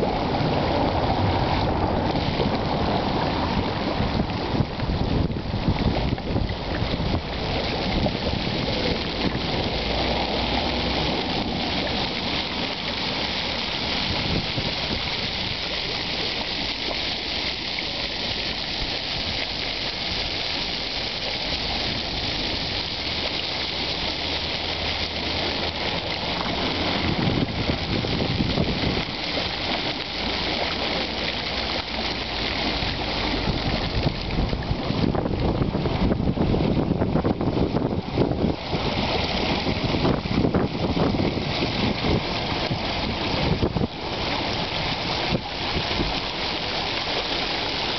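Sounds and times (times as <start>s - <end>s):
fountain water splashing into pool: 0.0s - 47.9s
wind rumble on microphone: 0.0s - 47.9s.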